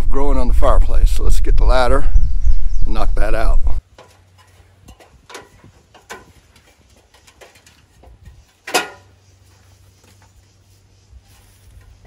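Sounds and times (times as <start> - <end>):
knocks on aluminum ladder: 3.9 - 9.2.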